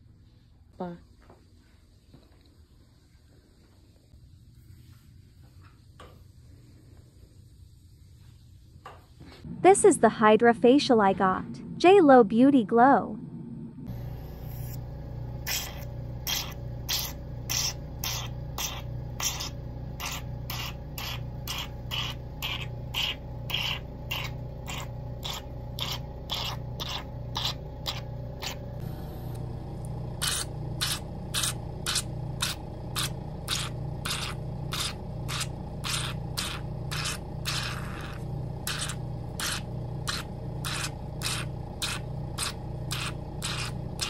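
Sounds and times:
low pump hum: 9.4s - 44.0s.

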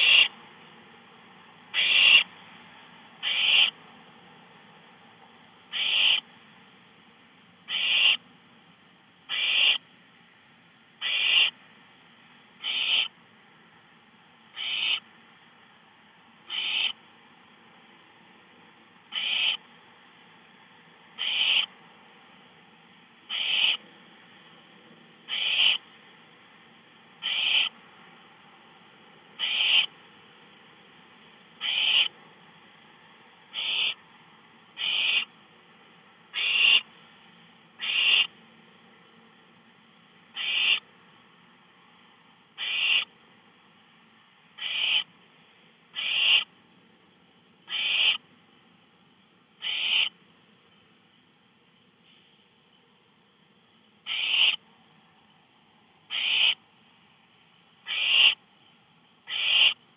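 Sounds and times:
owlets rasping hiss calls: 0.0s - 0.3s, 1.7s - 2.3s, 3.2s - 3.8s, 5.7s - 6.2s, 7.7s - 8.2s, 9.3s - 9.8s, 11.0s - 11.6s, 12.6s - 13.1s, 14.6s - 15.0s, 16.5s - 17.0s, 19.1s - 19.6s, 21.2s - 21.7s, 23.3s - 23.8s, 25.3s - 25.8s, 27.2s - 27.8s, 29.4s - 29.9s, 31.6s - 32.1s, 33.5s - 34.0s, 34.8s - 35.3s, 36.3s - 36.9s, 37.8s - 38.3s, 40.4s - 40.8s, 42.6s - 43.1s, 44.6s - 45.1s, 46.0s - 46.5s, 47.7s - 48.2s, 49.6s - 50.2s, 54.1s - 54.6s, 56.1s - 56.6s, 57.9s - 58.4s, 59.3s - 59.8s
faint hum: 0.0s - 59.9s.

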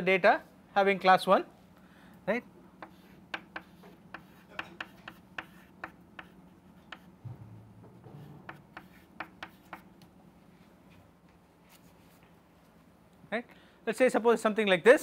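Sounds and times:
chalk tapping on chalkboard: 2.8s - 7.1s, 8.0s - 10.0s.

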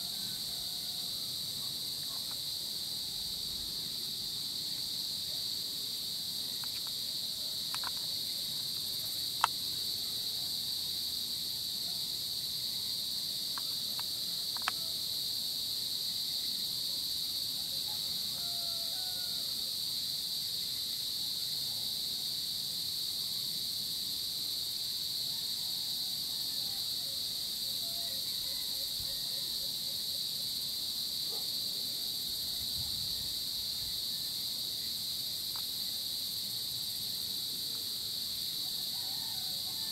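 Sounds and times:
insects shrilling: 6.1s - 17.4s.

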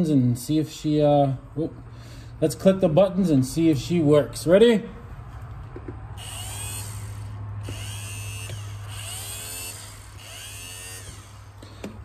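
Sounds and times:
power window motor whining: 6.2s - 11.7s.

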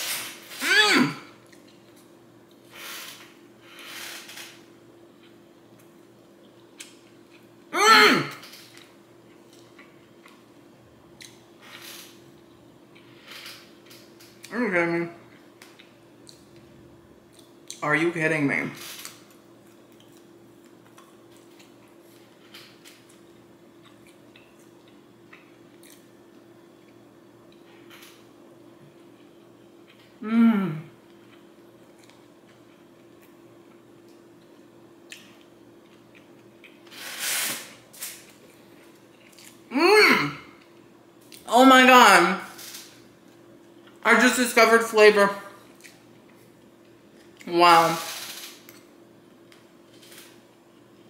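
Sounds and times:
man humming mmm: 0.6s - 1.3s, 7.8s - 8.4s, 30.2s - 31.0s, 39.7s - 40.5s
chewing food: 1.4s - 2.7s, 19.0s - 28.2s, 31.1s - 36.9s, 38.2s - 39.7s, 45.6s - 47.5s.

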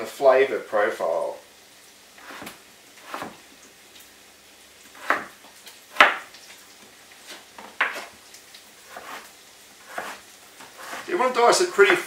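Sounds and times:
knife chopping potato on board: 2.2s - 3.4s, 5.0s - 6.3s, 7.7s - 8.1s, 8.8s - 11.1s, 11.7s - 12.0s.

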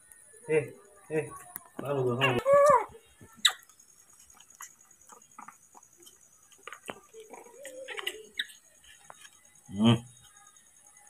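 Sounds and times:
wavering monkey call: 2.2s - 3.6s.

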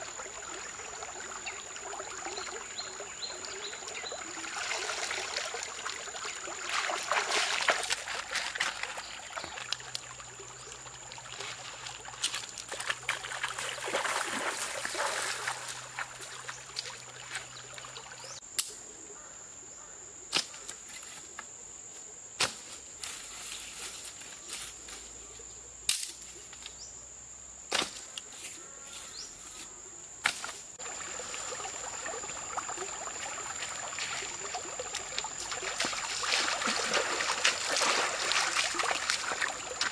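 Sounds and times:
water splashing and trickling: 0.0s - 18.4s, 30.8s - 39.9s
sharp snaps: 18.6s - 18.8s.

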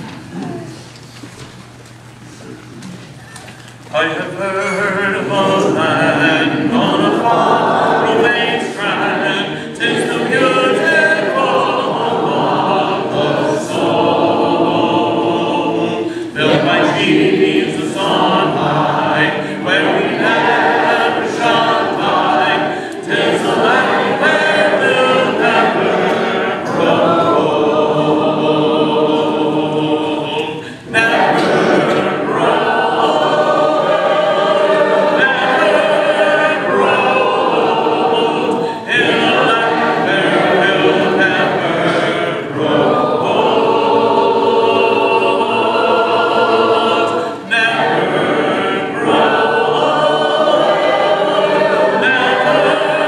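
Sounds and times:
congregation singing a hymn: 3.9s - 53.0s.

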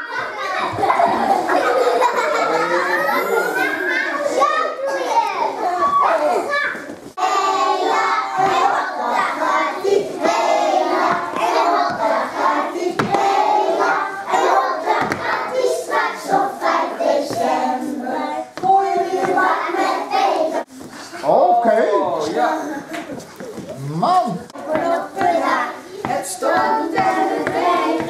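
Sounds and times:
young children singing: 7.2s - 20.8s, 24.6s - 28.0s.

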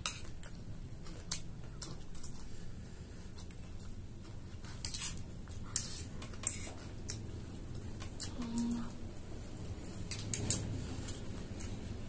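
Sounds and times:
metal spoons scraping plates: 4.8s - 6.8s.

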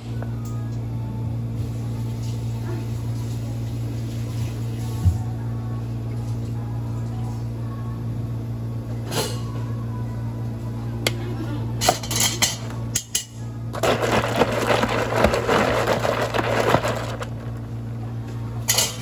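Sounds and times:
ice rattling in plastic cup: 13.7s - 17.7s.

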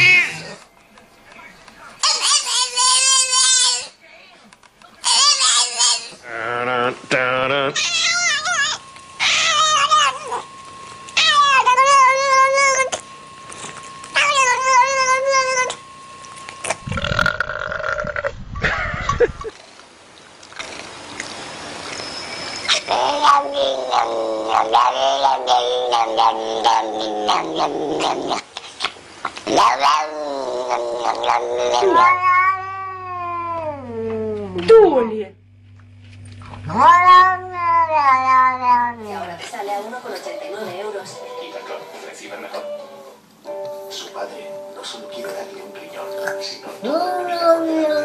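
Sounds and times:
cat yowling: 0.0s - 0.5s, 7.8s - 10.4s, 11.2s - 13.0s, 14.2s - 15.8s, 22.7s - 28.1s, 29.6s - 34.5s, 36.6s - 39.1s, 46.8s - 48.0s.

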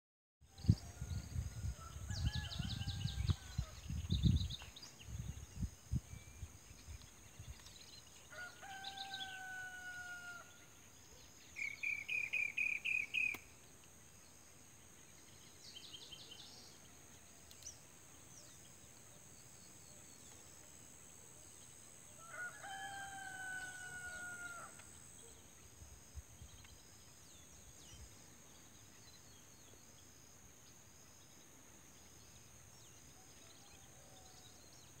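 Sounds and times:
low rumble on microphone: 0.6s - 6.1s
rooster crowing: 8.3s - 10.6s, 22.2s - 24.8s.

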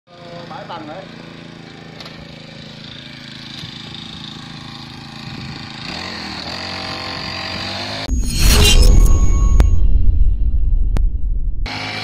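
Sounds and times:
brush cutter engine running and revving: 0.1s - 8.1s.

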